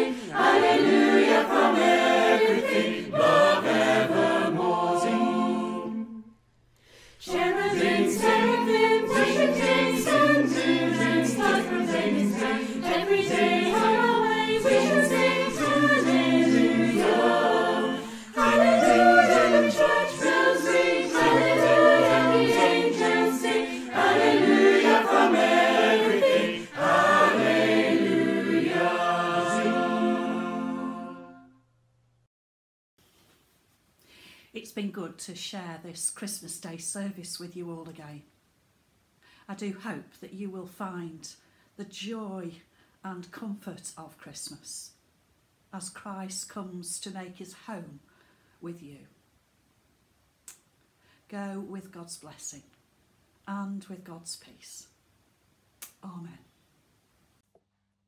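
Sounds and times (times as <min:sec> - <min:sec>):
mixed choir singing a cappella: 0:00.0 - 0:06.4, 0:07.1 - 0:31.5.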